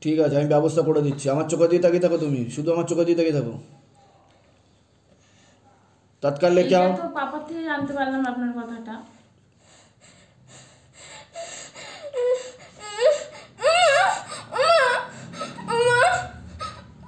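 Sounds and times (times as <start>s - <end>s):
woman sobbing: 11.0s - 17.0s
woman wailing: 12.1s - 17.0s.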